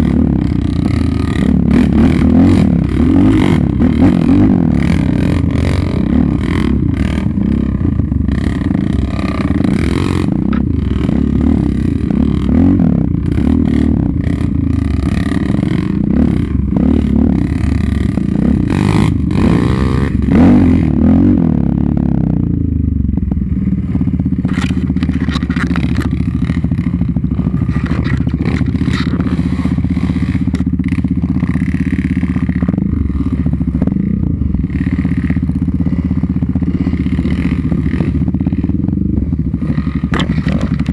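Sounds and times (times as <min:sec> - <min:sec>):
quad bike engine revving: 0:00.0 - 0:40.9
rattling and scraping through brush: 0:24.4 - 0:33.9, 0:39.6 - 0:40.9.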